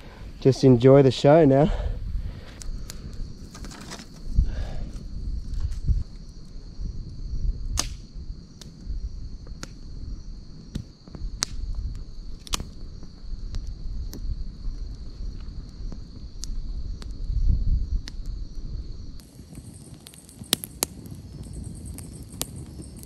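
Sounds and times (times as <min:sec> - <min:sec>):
campfire crackling and popping: 0:00.0 - 0:23.0
insects chirring: 0:00.0 - 0:23.0.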